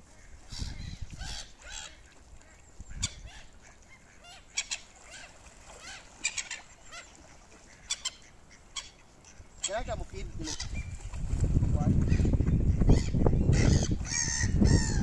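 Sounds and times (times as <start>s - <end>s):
gulls calling: 0.0s - 11.0s
ducks calling: 0.0s - 11.1s, 12.0s - 15.0s.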